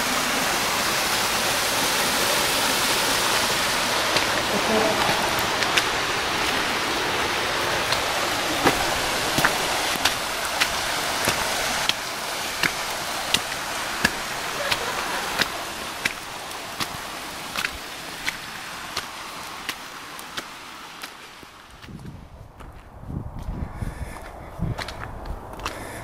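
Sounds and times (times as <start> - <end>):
steady rushing hiss: 0.0 - 21.9
footsteps crunching on snow: 3.6 - 25.9.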